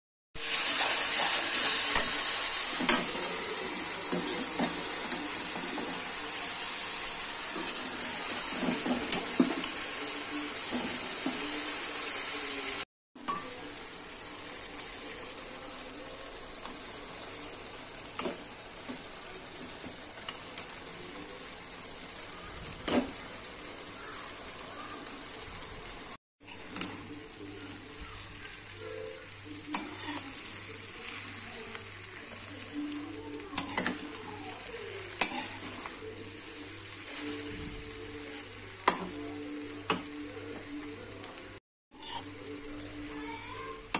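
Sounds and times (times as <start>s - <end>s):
vegetables sizzling in a pan: 0.4s - 43.9s
steel spatula scraping a pan: 29.7s - 30.5s, 35.2s - 37.6s, 41.9s - 42.5s.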